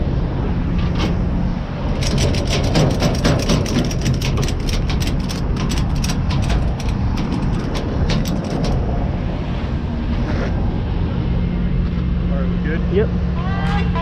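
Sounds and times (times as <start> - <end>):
truck road and engine rumble: 0.0 - 14.0
rattling metallic clicking: 0.6 - 9.1.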